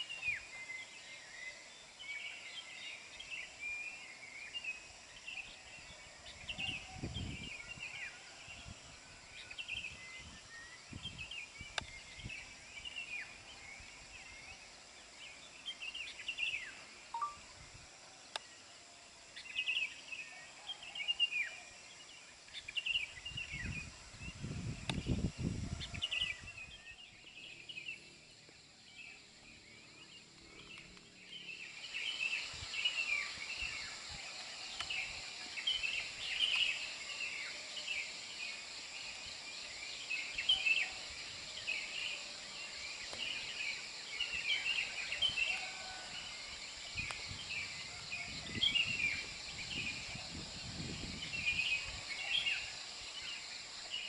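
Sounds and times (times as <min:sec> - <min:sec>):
high insect drone: 0:00.0 - 0:54.0
short high chirps: 0:17.1 - 0:17.4.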